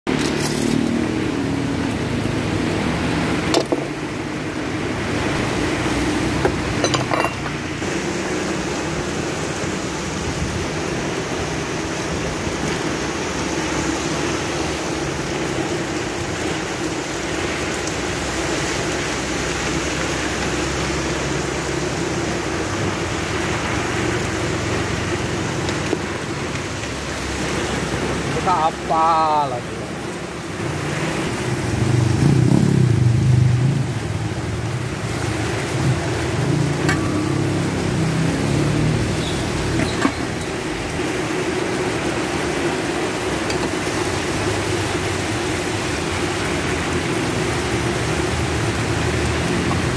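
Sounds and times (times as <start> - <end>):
rain hissing: 0.1 - 49.9
bowls and utensils clinking: 6.4 - 7.6.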